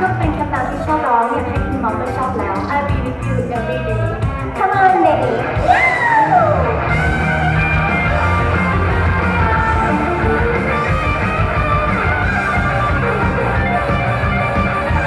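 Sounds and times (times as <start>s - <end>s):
instrumental pop-rock music: 0.0s - 15.0s.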